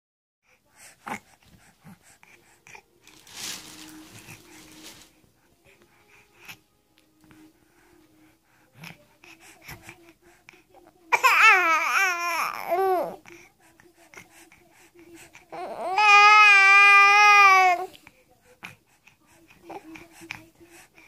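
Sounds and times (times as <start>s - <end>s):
baby babbling: 11.1s - 13.2s, 15.5s - 17.9s.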